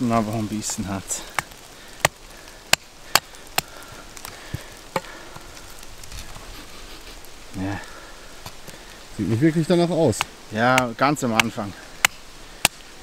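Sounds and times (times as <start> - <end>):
hatchet chopping wood on block: 10.2 - 12.8.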